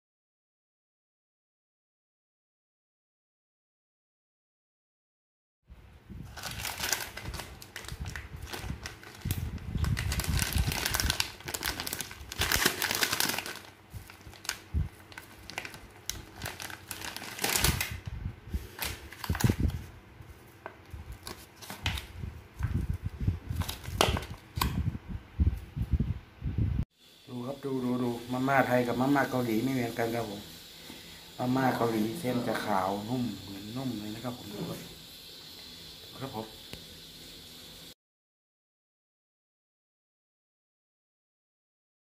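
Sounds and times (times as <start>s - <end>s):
plastic wrapper crinkling: 6.3s - 24.7s.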